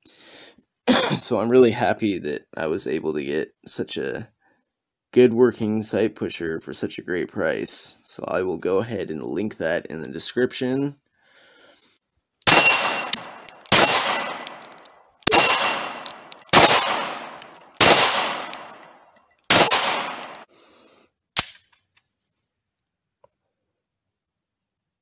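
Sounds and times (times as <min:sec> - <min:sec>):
pistol shots echoing: 0:12.5 - 0:20.4
metallic ring from steel target: 0:12.5 - 0:20.5.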